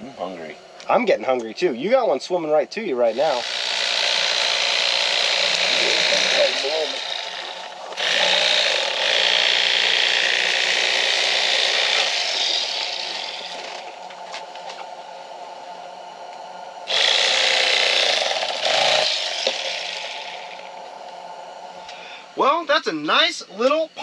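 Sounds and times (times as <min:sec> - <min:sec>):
electric fillet knife buzzing: 0:03.0 - 0:22.0.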